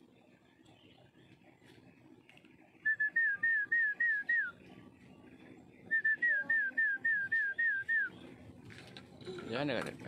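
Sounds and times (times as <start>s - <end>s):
bird singing whistled notes: 2.8s - 5.1s, 5.7s - 8.4s.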